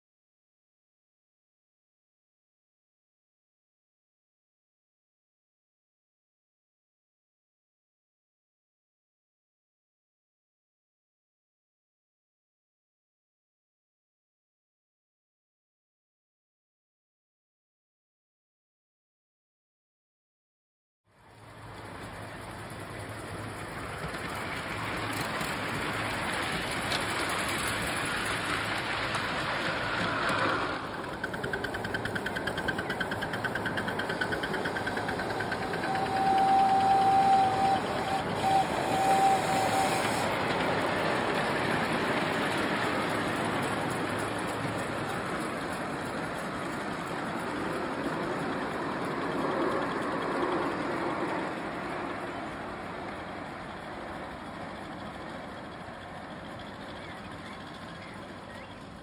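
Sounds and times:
miniature steam locomotives running: 0:21.1 - 0:59.0
steam whistle blasts: 0:35.4 - 0:40.4.

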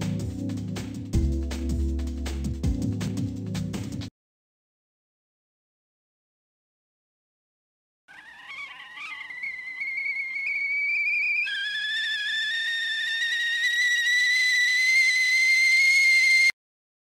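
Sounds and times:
high wavering whistle tone: 0:08.1 - 0:16.6.

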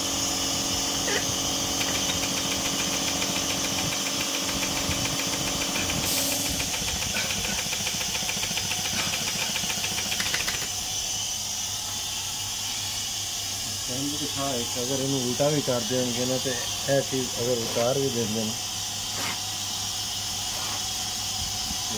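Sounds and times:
sewing machine hum and hiss: 0:00.0 - 0:21.9
rapid even ticking: 0:01.8 - 0:10.7.

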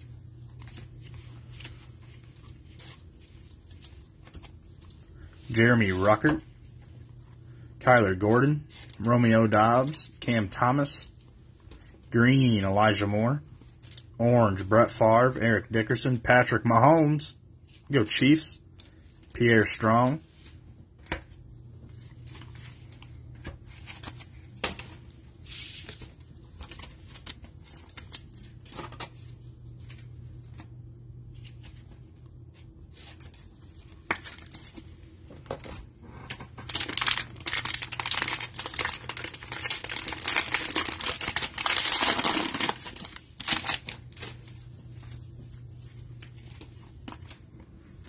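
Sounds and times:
cards and plastic sleeve rustling: 0:00.0 - 0:14.9, 0:17.7 - 0:48.0
wrapper crinkling and tearing: 0:36.3 - 0:44.7.

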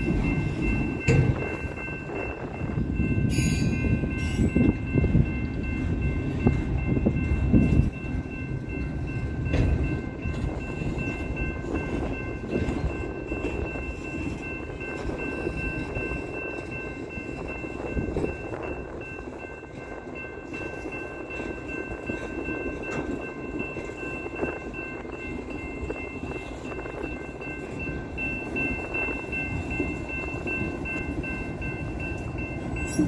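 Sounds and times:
train wheels rumbling on rail: 0:00.0 - 0:33.0.

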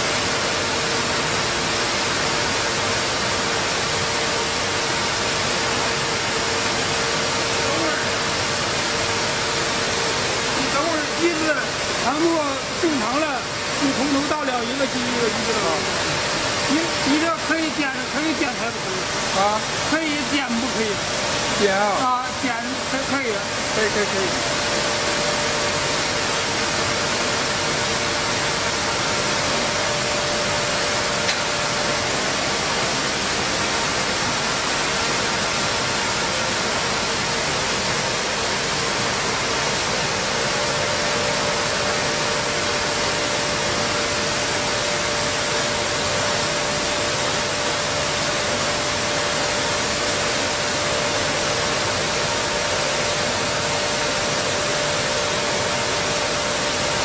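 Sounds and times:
faint machinery hums: 0:00.0 - 0:57.0
flour mill machinery hiss: 0:00.0 - 0:57.0.

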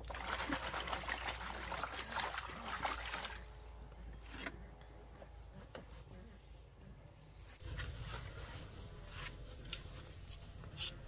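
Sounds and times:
water sloshing and trickling: 0:00.0 - 0:03.8.

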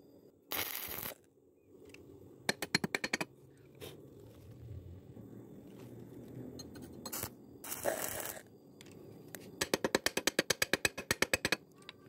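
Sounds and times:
hammer tapping on metal: 0:02.5 - 0:03.3, 0:09.6 - 0:11.6.

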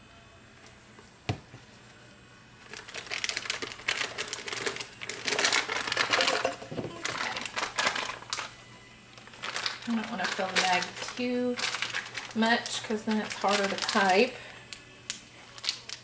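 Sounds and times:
piping bag rustling and scraping: 0:02.6 - 0:08.6, 0:09.2 - 0:14.6.

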